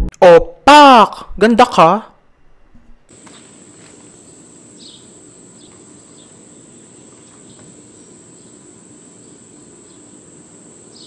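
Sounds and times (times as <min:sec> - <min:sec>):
faint low hum: 0:02.3 - 0:11.0
insects droning: 0:03.1 - 0:11.0.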